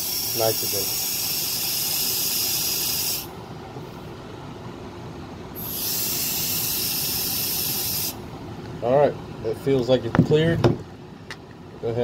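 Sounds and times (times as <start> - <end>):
pressurized gas hissing from hose: 0.0 - 3.3, 5.6 - 8.2.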